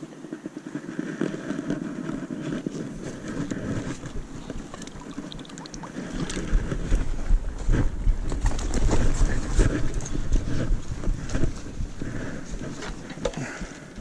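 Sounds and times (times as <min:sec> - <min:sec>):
fish splashing and thrashing in water: 0:04.0 - 0:07.0
net dripping water: 0:04.6 - 0:06.4.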